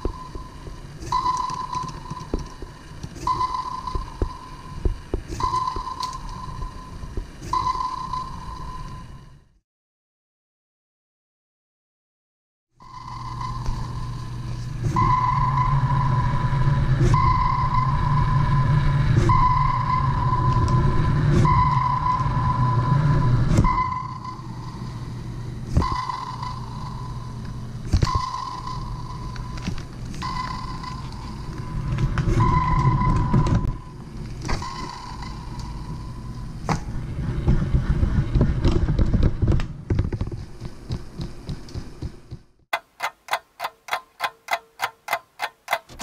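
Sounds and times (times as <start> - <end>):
robot motor and track rumble: 12.8 - 46.0
fast even clicking: 40.9 - 46.0.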